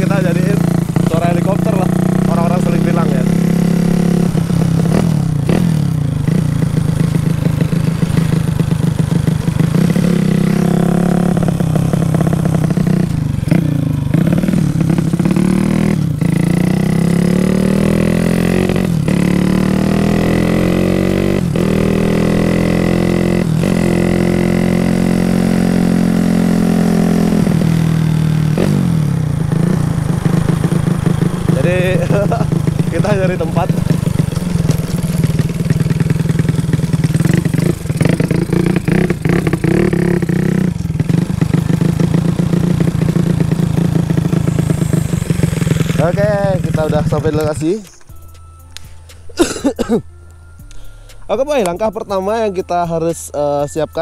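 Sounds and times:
motorcycle engine revving: 0.0s - 48.2s.

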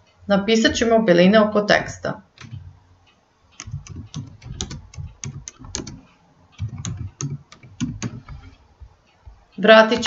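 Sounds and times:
typing on computer keyboard: 2.4s - 2.7s, 3.6s - 8.5s.

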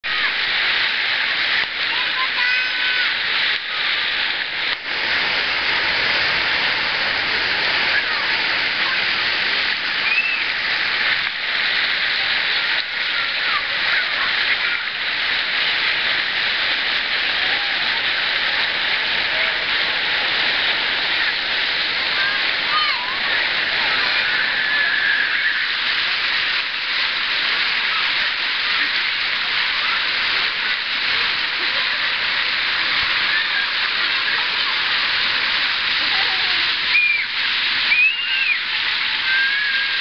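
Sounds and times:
fountain water pouring: 0.0s - 40.0s
distant children shouting: 22.1s - 25.8s.

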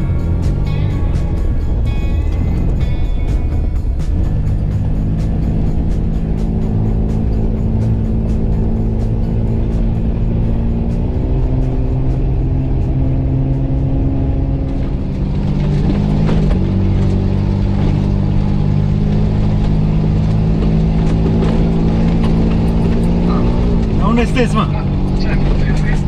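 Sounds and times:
diesel engine under load: 0.0s - 26.0s
vehicle knocking on rough track: 14.6s - 26.0s.

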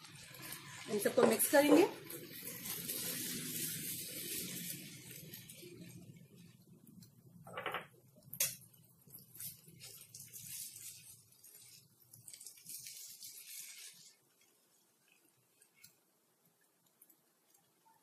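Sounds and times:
spatula scraping in a pan: 0.1s - 5.9s, 8.3s - 16.1s.

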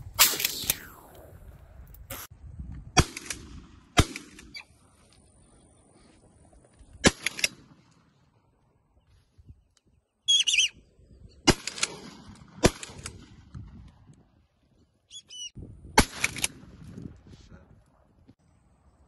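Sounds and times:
shotgun shots: 2.9s - 4.6s, 7.0s - 7.8s, 11.4s - 13.3s, 16.0s - 16.7s
short high bird calls: 10.2s - 10.9s, 15.1s - 15.6s.

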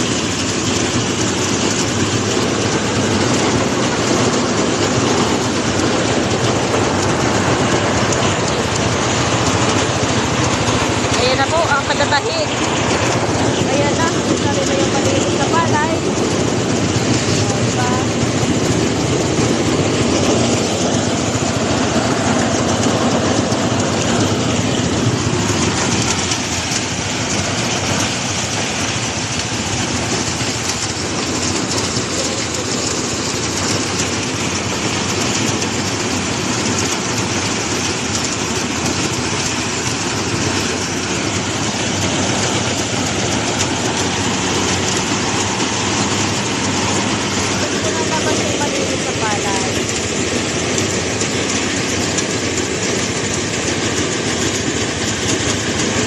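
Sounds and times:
constant rushing noise: 0.0s - 56.0s
harvester engine running: 0.0s - 56.0s.

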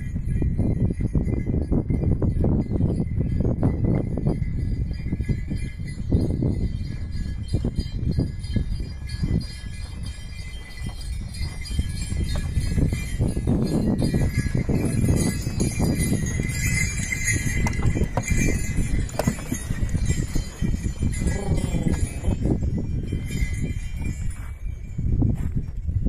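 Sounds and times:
horse hoofbeats: 0.0s - 25.8s
harness bells jingling: 0.0s - 26.0s
cart wheels rumbling: 5.9s - 24.2s.

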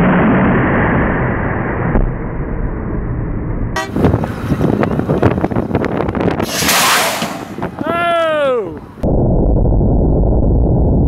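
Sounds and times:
air cannon rushing blast: 6.3s - 8.0s.

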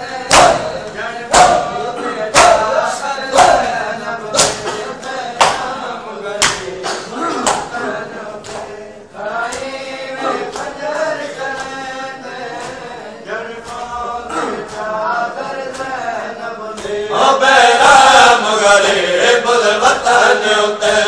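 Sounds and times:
crowd of men chanting: 0.0s - 21.0s
hands slapping chests: 0.3s - 1.7s, 2.3s - 2.7s, 4.4s - 4.7s, 6.4s - 7.7s, 8.4s - 8.7s, 11.5s - 11.8s, 13.6s - 14.0s, 15.7s - 16.0s.

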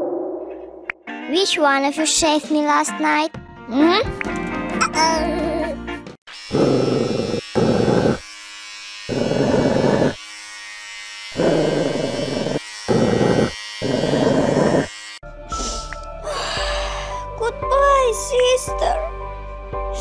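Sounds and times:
electric hair clippers buzzing: 6.3s - 15.2s.

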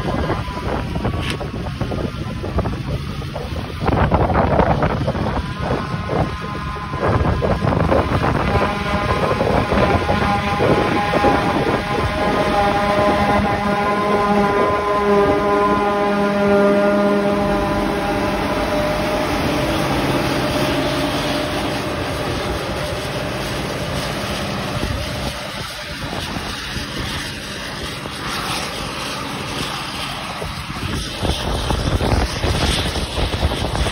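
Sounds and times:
forage harvester humming: 0.0s - 33.8s.

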